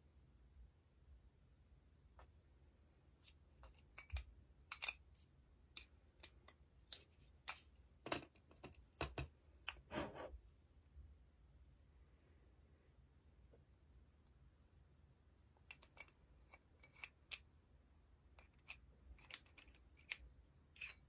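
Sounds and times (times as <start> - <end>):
scraping of small parts: 15.6 - 17.4, 18.4 - 21.0.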